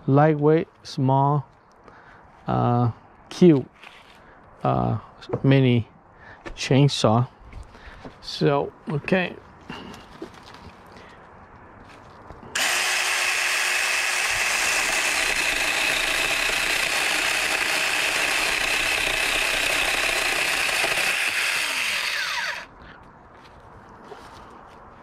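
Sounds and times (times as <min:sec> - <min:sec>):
mini chainsaw whining: 0:12.5 - 0:22.8.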